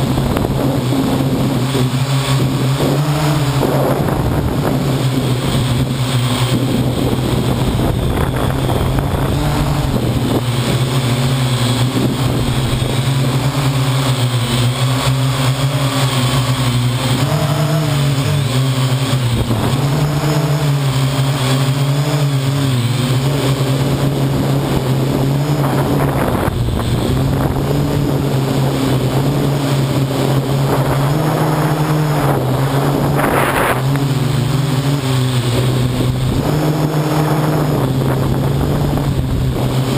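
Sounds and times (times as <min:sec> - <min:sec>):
drone propellers buzzing: 0:00.0 - 0:39.9
rushes of air noise: 0:00.0 - 0:39.9.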